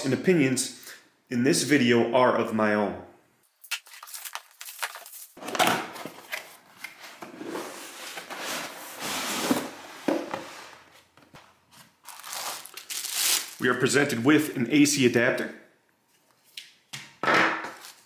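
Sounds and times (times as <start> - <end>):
plastic bag crinkling: 3.7 - 5.4, 12.0 - 13.7
plastic wrap rustling: 3.7 - 6.8, 11.7 - 13.8.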